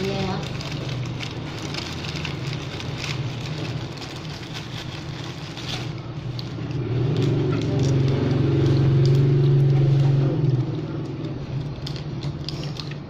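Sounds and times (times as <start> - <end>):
low machine hum: 0.0 - 13.0
plastic bag crinkling: 0.0 - 13.0.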